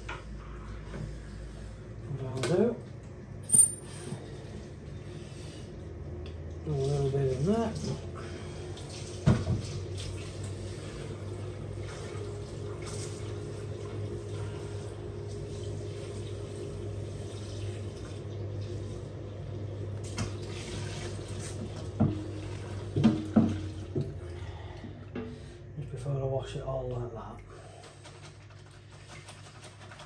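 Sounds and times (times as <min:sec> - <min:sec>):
tap water splashing into drawer: 0:09.0 - 0:10.2, 0:20.0 - 0:22.2, 0:22.9 - 0:24.2
drawer knocking in sink: 0:23.0 - 0:23.6.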